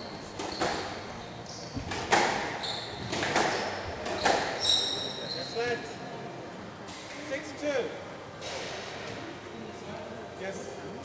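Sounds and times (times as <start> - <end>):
shoes squeaking on wooden floor: 0.0 - 5.6.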